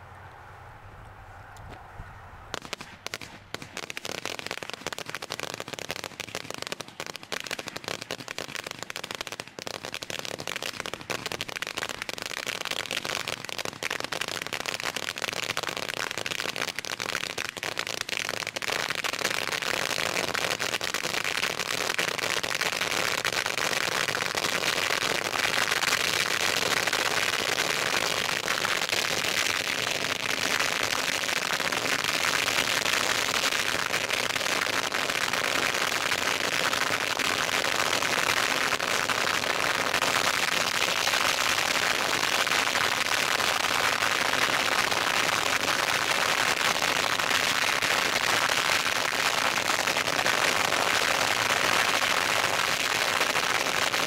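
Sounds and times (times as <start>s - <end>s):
firecrackers banging: 2.5s - 15.1s.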